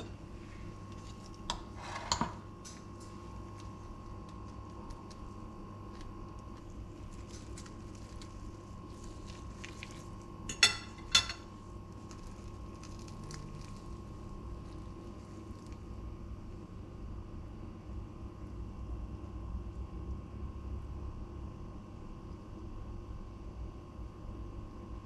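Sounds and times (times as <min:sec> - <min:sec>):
steady electrical hum: 0:00.0 - 0:25.0
cutlery clinking on plate: 0:10.5 - 0:11.5.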